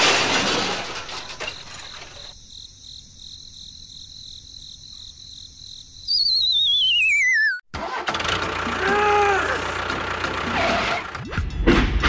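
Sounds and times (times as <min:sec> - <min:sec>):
crickets chirping: 0:01.4 - 0:06.8.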